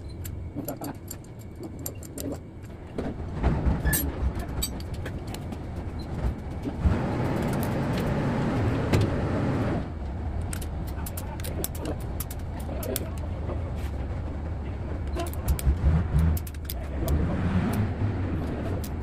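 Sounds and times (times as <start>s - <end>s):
light metal clicks of tools: 0.0s - 2.8s
steady mechanical rumble: 0.0s - 19.0s.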